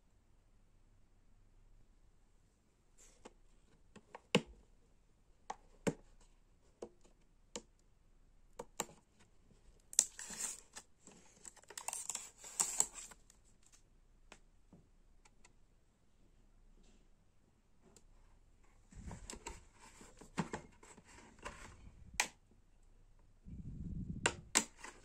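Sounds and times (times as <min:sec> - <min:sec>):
plastic scraping and rustling: 0:10.0 - 0:13.8, 0:18.9 - 0:22.0, 0:24.3 - 0:25.0.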